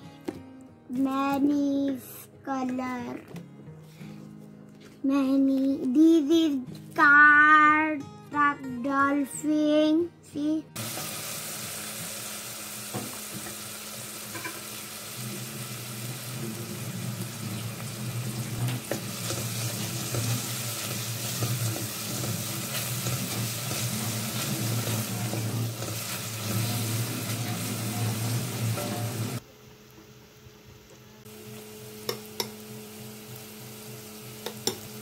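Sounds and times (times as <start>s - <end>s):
onions sizzling in hot oil: 10.8s - 35.0s.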